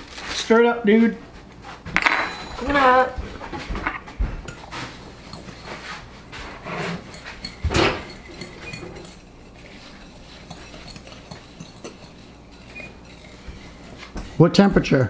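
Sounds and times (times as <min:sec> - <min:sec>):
fork clinking on glass bowl: 0:02.0 - 0:02.8, 0:07.0 - 0:14.4
fork knocking on bowl: 0:06.3 - 0:15.0.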